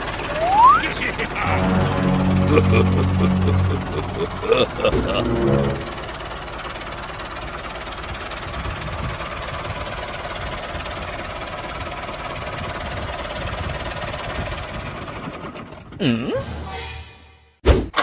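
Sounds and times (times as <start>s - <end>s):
tractor engine chugging: 0.0s - 2.4s, 4.3s - 16.0s.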